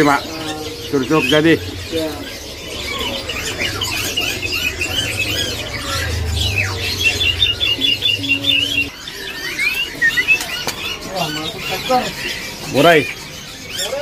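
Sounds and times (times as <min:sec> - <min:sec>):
songbirds chirping and whistling: 0:00.0 - 0:14.0
low steady hum: 0:00.2 - 0:09.0.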